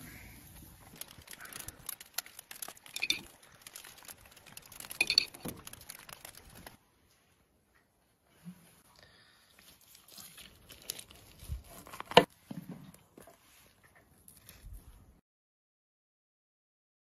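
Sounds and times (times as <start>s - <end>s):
meat crackling on grill: 0.4s - 6.8s, 9.8s - 12.3s.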